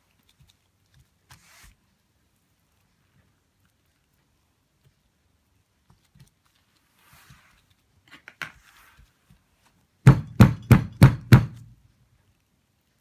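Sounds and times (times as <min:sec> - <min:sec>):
faint scrapes and clicks: 0:00.0 - 0:09.8.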